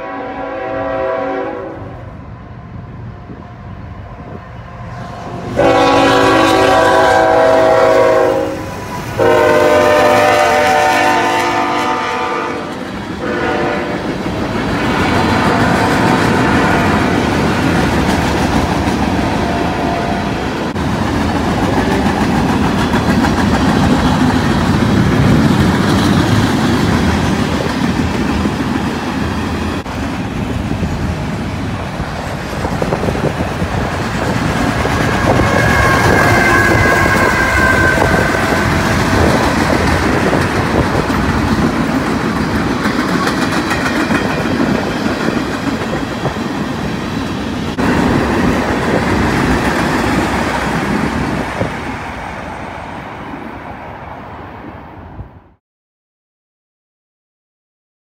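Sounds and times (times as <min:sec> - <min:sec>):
locomotive air horn blasts: 0:00.0 - 0:02.1, 0:05.5 - 0:14.1, 0:14.8 - 0:17.2, 0:19.5 - 0:20.4, 0:35.1 - 0:39.4
freight train wheels clacking: 0:05.0 - 0:52.2.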